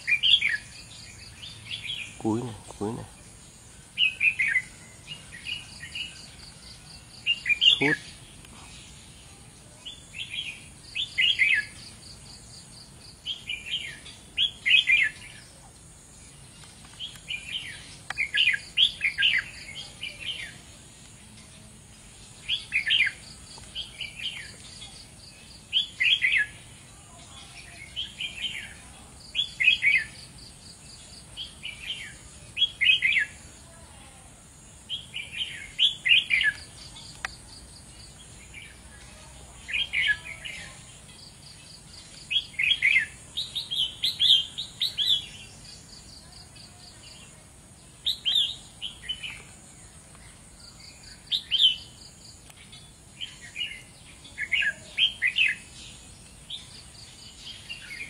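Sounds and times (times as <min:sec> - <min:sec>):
bird singing quick phrases: 0:07.2 - 0:08.5.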